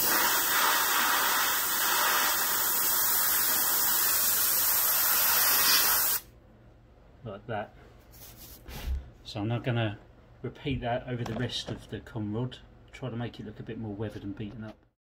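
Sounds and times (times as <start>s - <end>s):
airbrush hissing: 0.0s - 6.3s.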